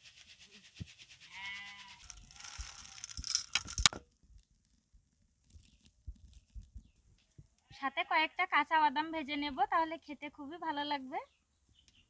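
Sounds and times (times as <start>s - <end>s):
goat bleating: 1.3s - 2.1s
sharp clicks: 2.0s - 4.0s.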